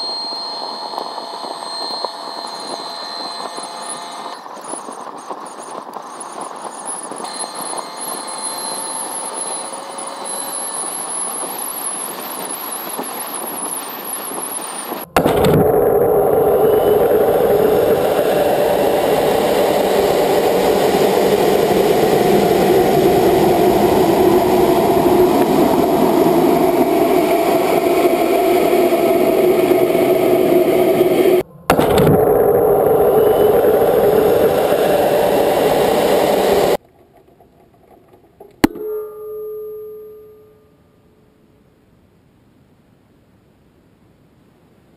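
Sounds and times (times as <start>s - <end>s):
rocket motor rushing roar: 0.0s - 36.8s
steady hiss with high whine: 0.0s - 36.8s.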